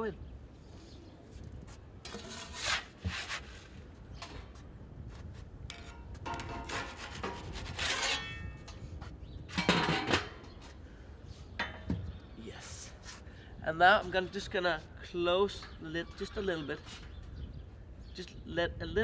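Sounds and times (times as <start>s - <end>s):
wooden peel scraping steel: 2.0s - 3.7s, 5.7s - 8.7s.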